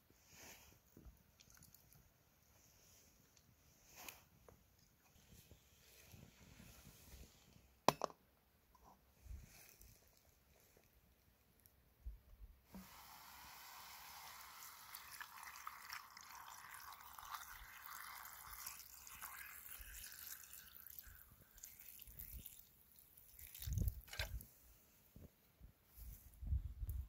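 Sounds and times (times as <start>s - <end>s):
water pouring into metal pan: 12.9s - 24.2s.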